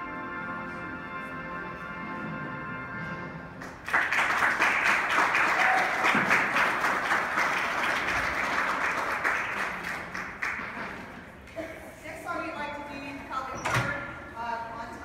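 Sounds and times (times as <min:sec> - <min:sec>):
crowd applause: 0:03.6 - 0:11.4.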